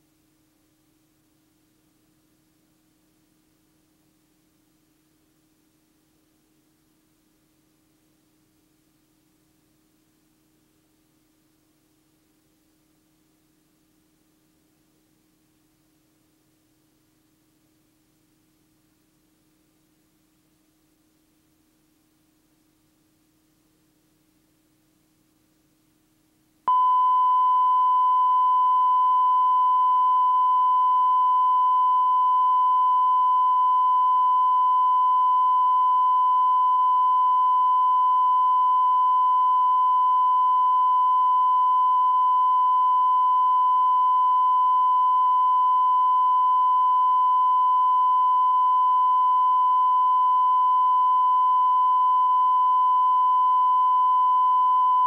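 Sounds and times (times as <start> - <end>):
steady test tone: 26.7 - 55.0.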